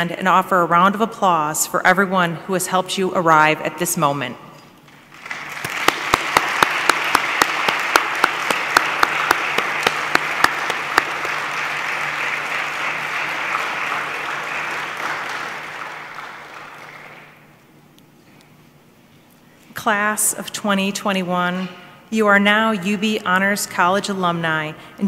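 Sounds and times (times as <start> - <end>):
crowd applauding: 5.1 - 17.4
sharp claps: 5.1 - 17.4.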